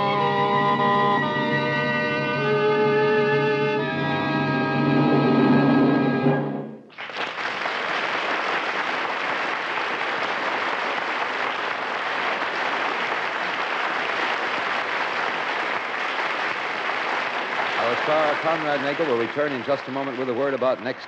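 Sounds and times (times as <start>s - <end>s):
closing music: 0.0s - 6.9s
audience applauding: 6.9s - 21.0s.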